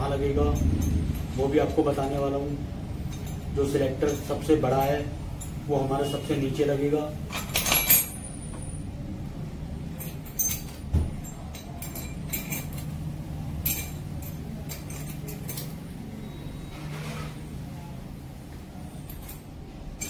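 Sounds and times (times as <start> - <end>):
steel parts clinking: 0.2 - 5.7, 7.3 - 8.8, 9.9 - 16.0, 19.0 - 20.0.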